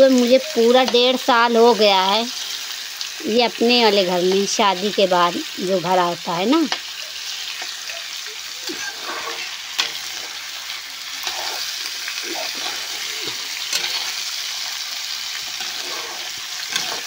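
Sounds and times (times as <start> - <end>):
potatoes sizzling in oil: 0.0 - 17.0
spoon scraping a pan: 8.6 - 17.0.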